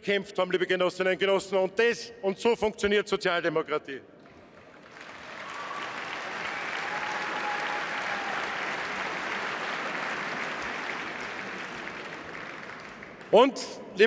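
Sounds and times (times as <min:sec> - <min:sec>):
large audience applauding: 0:04.3 - 0:13.4.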